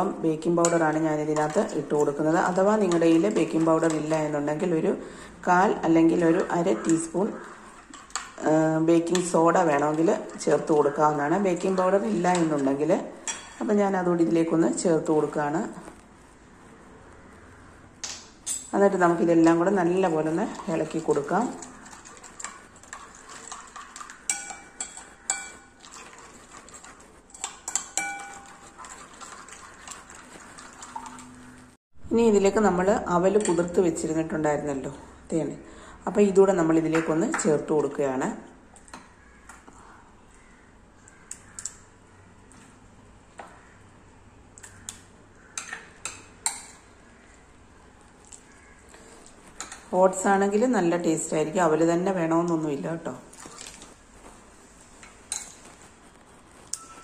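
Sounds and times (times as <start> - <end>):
spoon stirring in ceramic bowl: 0.0 - 16.1, 18.0 - 31.7, 32.7 - 34.8, 44.6 - 47.4, 48.2 - 57.0
spoon clinking against ceramic bowl: 23.7 - 25.8, 27.3 - 29.0.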